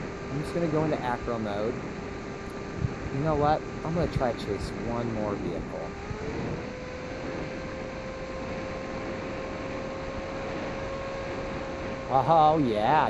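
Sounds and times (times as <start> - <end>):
rushing wind: 0.0 - 13.0
electric motor whine: 5.9 - 12.6.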